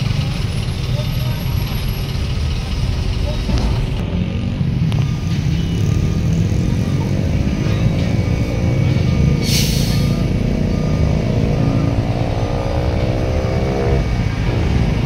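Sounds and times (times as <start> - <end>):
truck diesel engine rumbling: 0.0 - 15.0
air brakes hissing: 9.3 - 10.2.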